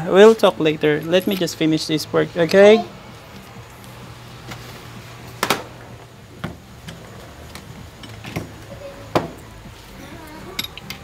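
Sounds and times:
steady low hum: 0.0s - 11.0s
hand tool clicking on metal: 10.6s - 11.0s.

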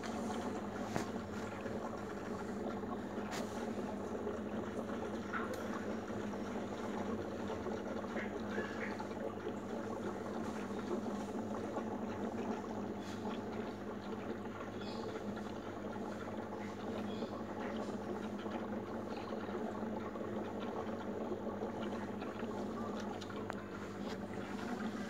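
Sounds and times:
constant low hum: 0.0s - 25.0s
fish tank bubbling: 0.0s - 25.0s.

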